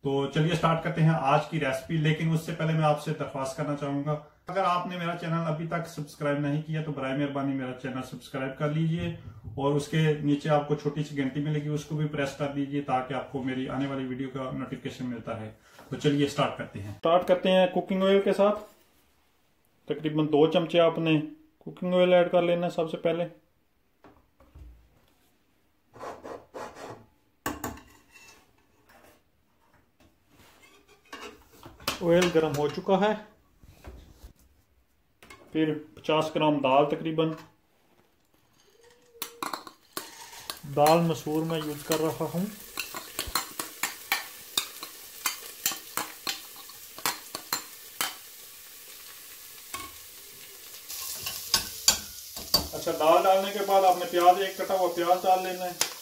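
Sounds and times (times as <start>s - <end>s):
metal ladle scraping pot: 27.8s - 29.2s, 38.4s - 48.2s
lentils sizzling in oil: 38.6s - 56.0s.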